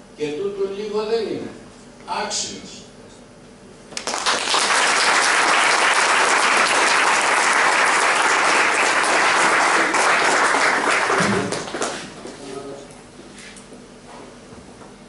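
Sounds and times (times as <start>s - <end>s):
audience applauding: 4.0s - 12.4s.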